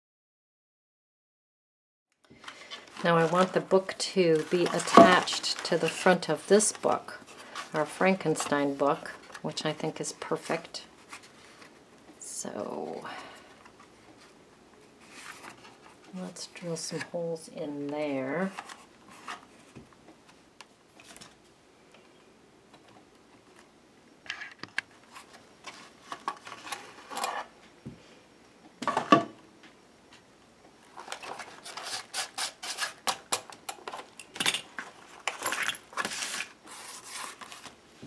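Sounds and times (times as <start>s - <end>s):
drill crunching through book cover: 31.4s - 33.4s.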